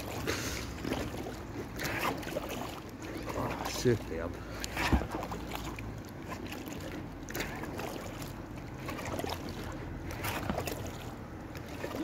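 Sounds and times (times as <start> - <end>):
low steady rumble: 0.0 - 12.0
paddle splashing in water: 0.0 - 12.0.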